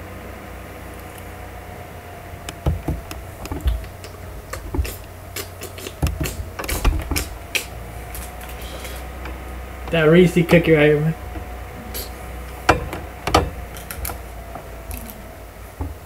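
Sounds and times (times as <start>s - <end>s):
steady low hum: 0.0s - 16.0s
knocks and thumps of handling: 2.5s - 7.5s, 11.2s - 15.0s, 15.8s - 16.0s.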